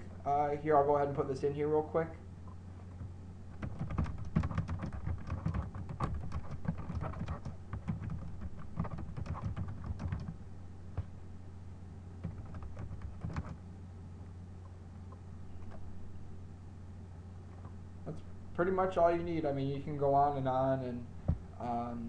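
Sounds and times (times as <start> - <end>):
steady low hum: 0.0 - 22.0
keyboard typing: 2.9 - 10.4, 12.2 - 13.6.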